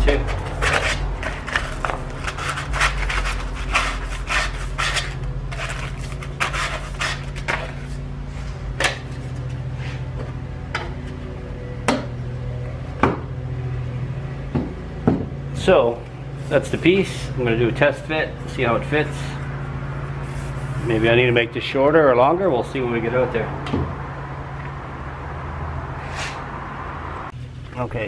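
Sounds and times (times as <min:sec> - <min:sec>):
low hum: 0:00.0 - 0:28.0
sandpaper rubbing plastic pipe: 0:00.2 - 0:08.0, 0:20.2 - 0:21.3.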